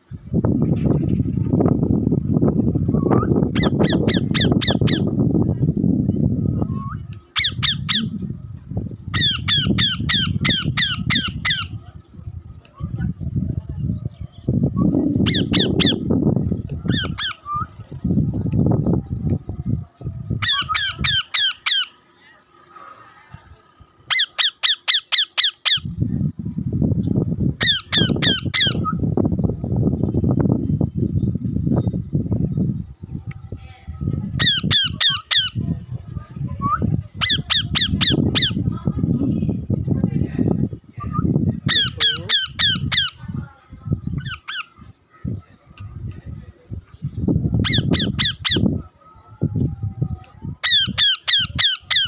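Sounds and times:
low rumbling noise: 0.0 - 24.1, 25.7 - 51.6
parakeets squawking: 3.2 - 5.1, 7.4 - 8.2, 9.0 - 11.8, 15.1 - 16.1, 16.8 - 17.7, 20.4 - 22.1, 24.0 - 25.9, 27.6 - 28.9, 34.3 - 35.7, 37.2 - 38.8, 41.6 - 43.5, 44.1 - 44.9, 47.6 - 49.0, 50.6 - 52.0
loud low rumbling: 25.8 - 44.3.

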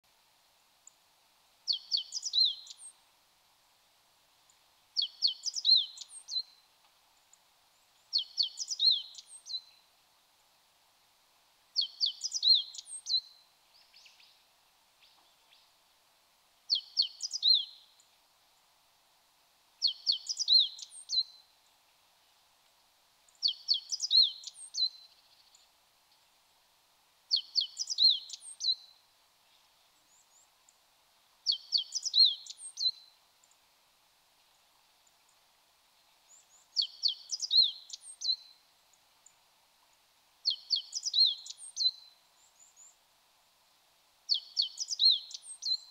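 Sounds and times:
faint bird chirps: 1.7 - 3.1, 4.4 - 9.9, 11.8 - 15.8, 16.7 - 18.2, 19.8 - 21.6, 23.2 - 26.3, 27.3 - 30.8, 31.4 - 33.6, 36.0 - 39.4, 40.4 - 43.1, 44.3 - 45.9.

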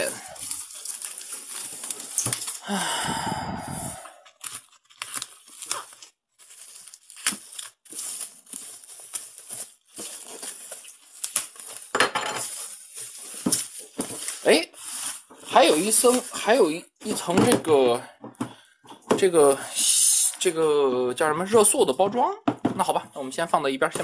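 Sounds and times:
plastic wrap rasp: 0.0 - 2.7, 3.8 - 16.8
plastic wrap crinkling: 0.0 - 3.0, 3.7 - 17.3.

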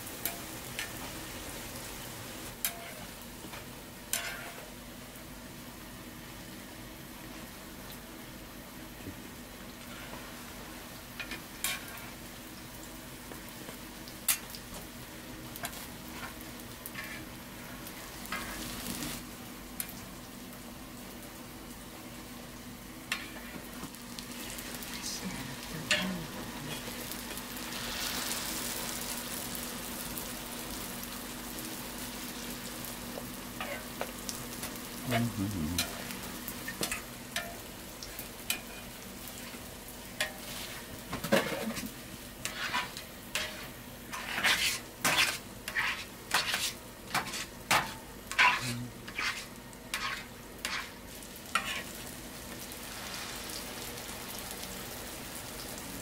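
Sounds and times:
food sizzling in oil: 0.0 - 56.0
low steady hum: 24.0 - 28.0.

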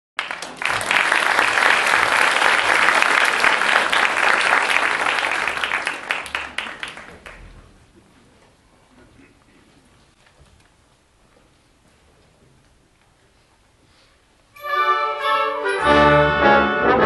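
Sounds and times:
audience applauding: 0.2 - 7.6.

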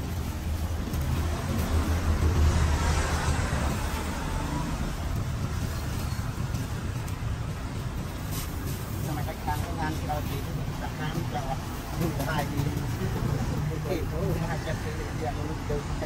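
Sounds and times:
vehicle passing close by: 0.0 - 6.4.

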